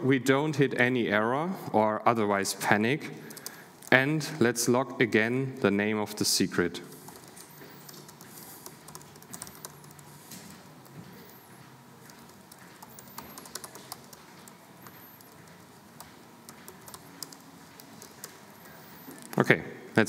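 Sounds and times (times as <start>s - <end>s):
laptop keyboard typing: 3.2s - 3.6s, 6.9s - 19.4s.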